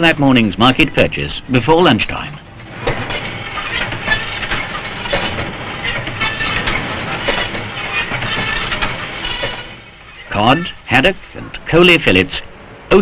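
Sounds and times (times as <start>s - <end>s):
machine mechanical clatter: 2.2s - 10.4s.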